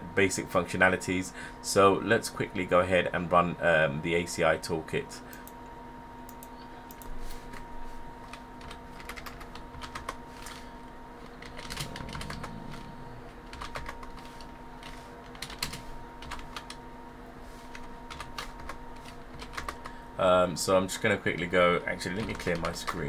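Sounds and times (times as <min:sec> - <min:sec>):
faint steady hum: 0:00.0 - 0:23.0
typing on computer keyboard: 0:08.6 - 0:10.6, 0:11.4 - 0:12.9, 0:13.5 - 0:16.8, 0:17.8 - 0:19.9, 0:22.2 - 0:23.0.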